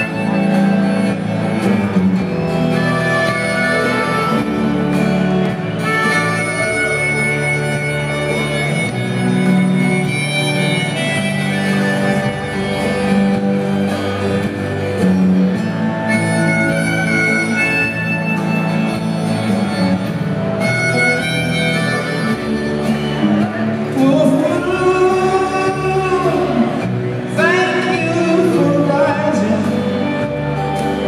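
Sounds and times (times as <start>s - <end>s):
band playing: 0.0s - 31.0s
harmonica melody: 0.0s - 31.0s
person singing: 24.0s - 30.1s.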